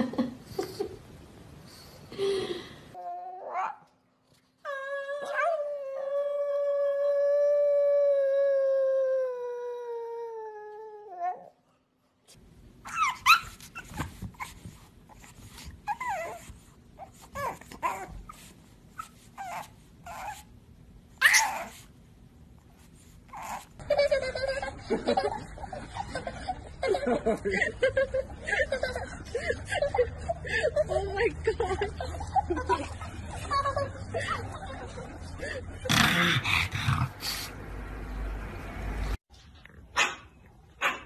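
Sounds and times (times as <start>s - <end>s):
puppy yipping and whimpering: 12.9s - 14.6s, 15.8s - 18.4s, 19.0s - 20.5s, 21.2s - 21.8s, 23.3s - 23.7s.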